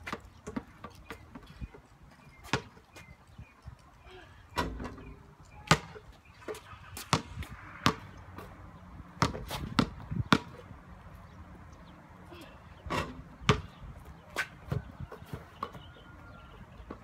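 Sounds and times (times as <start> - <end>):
ball bouncing on concrete: 5.6 - 8.5, 9.2 - 10.6, 12.9 - 13.8.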